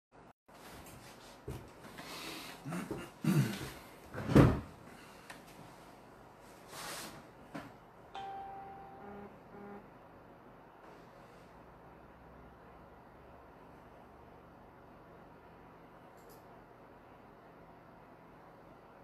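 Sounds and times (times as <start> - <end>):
beep-like tone: 8.2 - 9.8.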